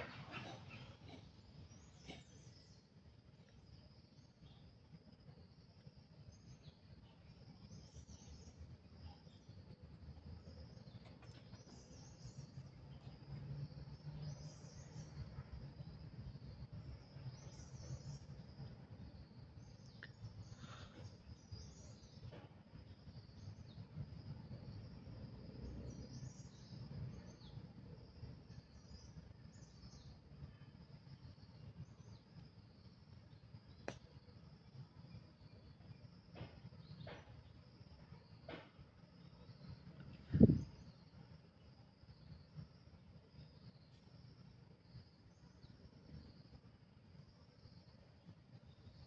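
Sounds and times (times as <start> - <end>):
bird chirps: 0.0 - 3.0.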